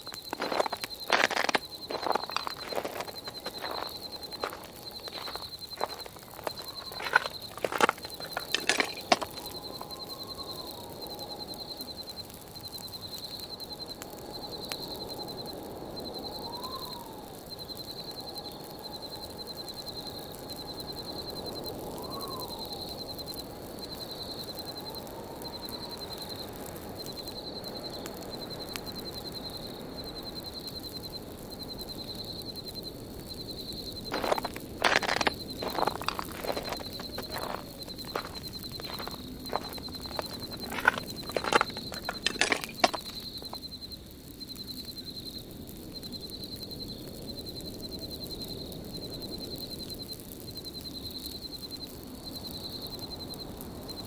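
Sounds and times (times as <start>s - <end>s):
whistling wind: 0.0s - 12.6s, 13.9s - 31.1s, 33.4s - 43.7s
campfire popping: 0.0s - 54.0s.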